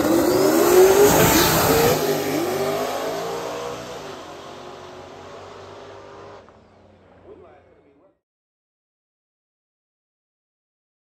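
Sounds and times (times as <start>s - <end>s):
drag cars accelerating past: 0.0s - 7.2s.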